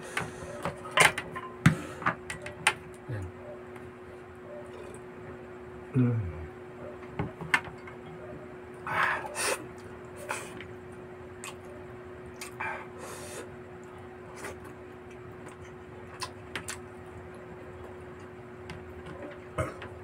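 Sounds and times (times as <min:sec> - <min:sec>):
faint steady hum: 0:00.0 - 0:20.0
chewing clicks and smacks: 0:11.4 - 0:12.6, 0:13.8 - 0:18.4.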